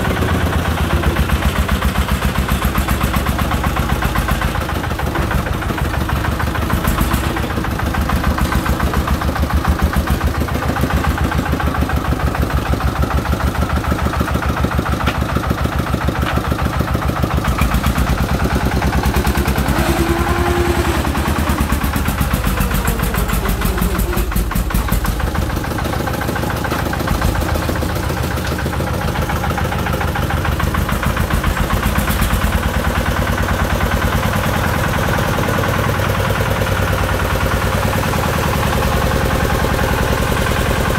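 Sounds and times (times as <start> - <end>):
diesel engine chugging: 0.0 - 40.9.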